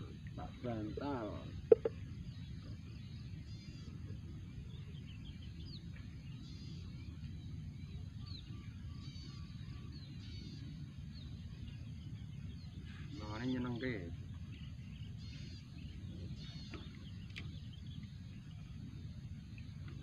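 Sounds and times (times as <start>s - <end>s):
birds chirping: 0.0s - 20.0s
low outdoor rumble: 0.0s - 20.0s.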